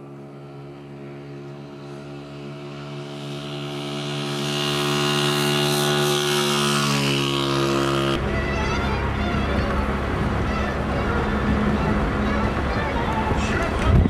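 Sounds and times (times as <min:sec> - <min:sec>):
vehicle engine passing: 0:00.0 - 0:14.0
wind and road noise inside vehicle: 0:07.4 - 0:14.0.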